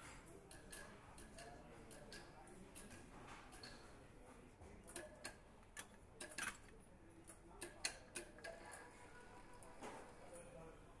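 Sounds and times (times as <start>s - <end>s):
faint tool clicks and ticks: 0.0s - 4.0s, 4.8s - 8.8s.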